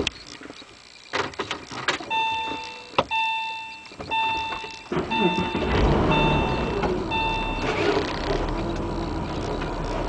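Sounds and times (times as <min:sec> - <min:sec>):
dashboard warning chime: 0:02.1 - 0:08.5.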